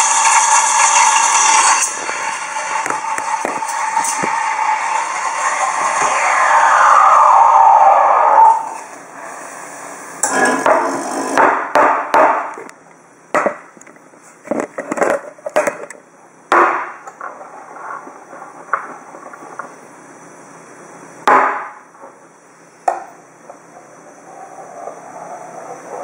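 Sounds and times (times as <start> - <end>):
steam wand rushing: 0.0 - 11.4.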